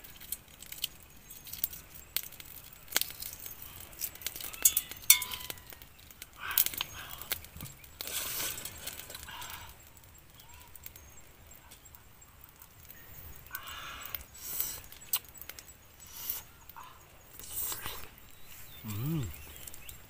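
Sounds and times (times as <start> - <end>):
eggshell crackling: 0.0 - 20.0
vocal-like sounds: 18.8 - 19.4.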